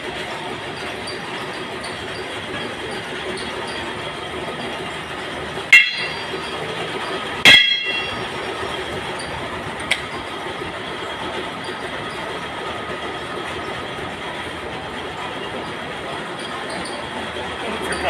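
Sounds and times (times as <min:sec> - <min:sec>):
steady mechanical din: 0:00.0 - 0:18.0
metal rods clinking: 0:05.7 - 0:08.3.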